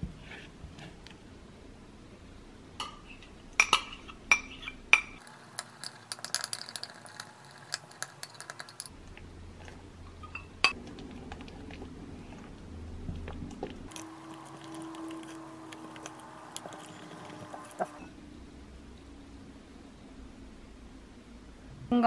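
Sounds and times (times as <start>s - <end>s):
metal utensil clinking on glass bowl: 3.6s - 8.9s.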